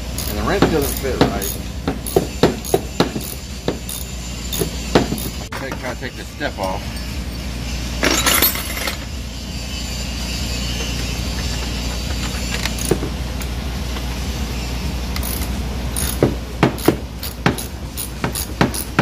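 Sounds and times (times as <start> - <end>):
metal hand tools clinking: 0.1 - 5.4
wrench ticking on bolt: 0.2 - 5.3, 15.2 - 16.2.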